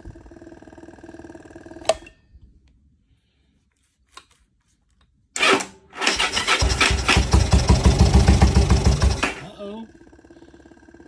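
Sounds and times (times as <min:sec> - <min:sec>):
motorcycle engine starting: 0:00.0 - 0:02.4, 0:05.4 - 0:11.0
faint steady hum: 0:00.0 - 0:05.4, 0:09.4 - 0:11.0.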